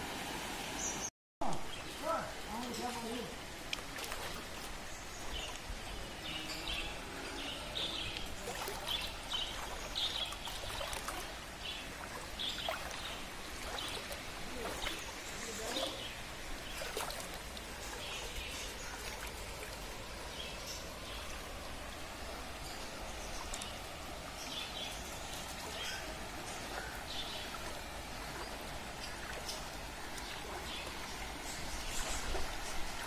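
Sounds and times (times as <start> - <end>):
floodwater running through street: 0.0 - 33.0.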